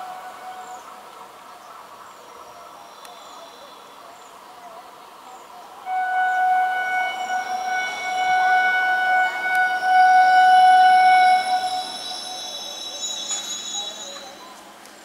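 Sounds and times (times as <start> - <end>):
electric train air horn: 0.0 - 1.0, 5.8 - 14.6.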